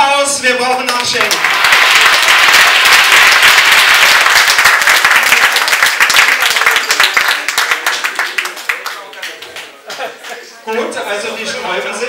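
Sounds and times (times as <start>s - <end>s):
audience applauding: 0.9s - 10.4s.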